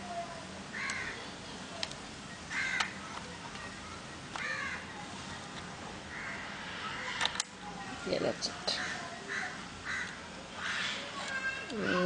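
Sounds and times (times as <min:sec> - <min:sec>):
crows cawing: 0:00.8 - 0:01.2, 0:02.5 - 0:03.0, 0:04.4 - 0:04.8, 0:06.1 - 0:07.2, 0:08.7 - 0:12.0.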